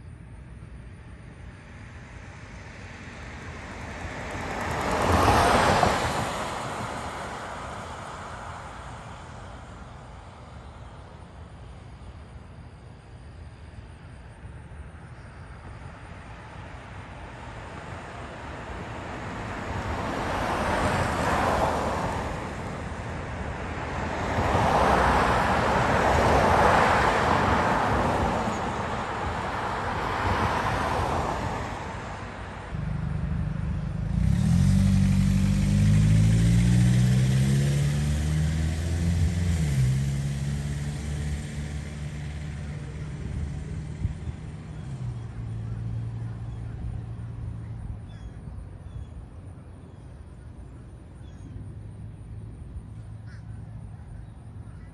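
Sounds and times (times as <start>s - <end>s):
cars passing: 0.0s - 54.9s
low engine hum: 0.0s - 54.9s.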